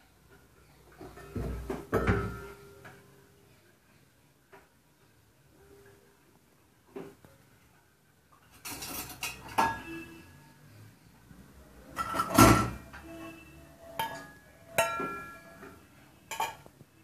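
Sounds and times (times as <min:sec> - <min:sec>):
steel bowls clinking: 0:11.9 - 0:16.7.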